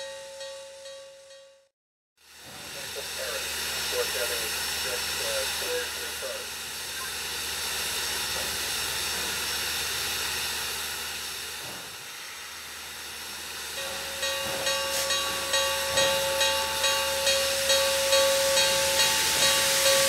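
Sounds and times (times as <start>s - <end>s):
locomotive bell ringing: 0.0s - 1.7s, 13.7s - 20.0s
steam locomotive hissing: 2.2s - 20.0s.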